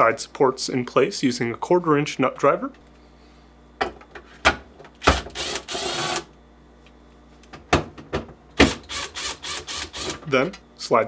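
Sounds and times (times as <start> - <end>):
cordless driver running: 5.1 - 6.3, 8.7 - 10.2.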